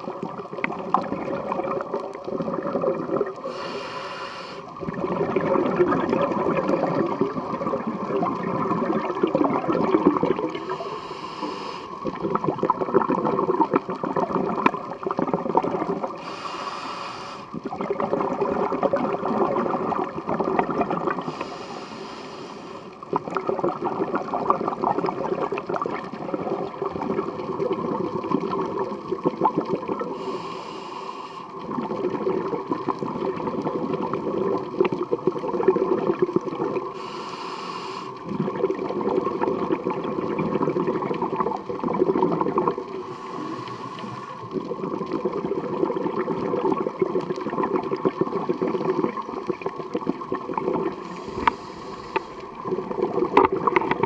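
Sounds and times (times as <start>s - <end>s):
bubbling exhalations underwater: 0.0s - 3.6s, 4.7s - 11.0s, 11.9s - 16.4s, 17.5s - 21.5s, 23.0s - 30.4s, 31.6s - 37.1s, 38.2s - 43.6s, 44.3s - 54.0s
regulator hissing inhale: 3.4s - 4.8s, 10.5s - 12.0s, 16.2s - 17.6s, 21.2s - 23.0s, 30.1s - 31.6s, 36.9s - 38.2s, 42.9s - 44.6s, 51.0s - 52.6s.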